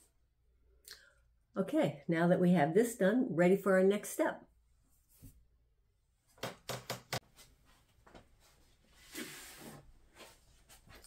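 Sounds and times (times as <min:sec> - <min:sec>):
knocks of objects on table: 0:06.4 - 0:07.2.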